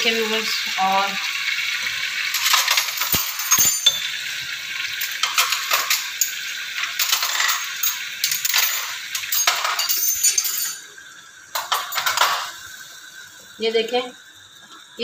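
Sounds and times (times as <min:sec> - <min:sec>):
chicken sizzling in oil: 0:00.0 - 0:02.6, 0:04.0 - 0:07.0, 0:12.4 - 0:15.0.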